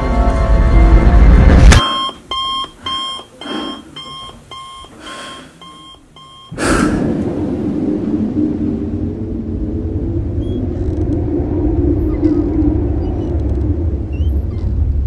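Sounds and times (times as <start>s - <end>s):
alarm clock beeping: 1.8s - 6.6s
low rumble: 6.5s - 15.0s.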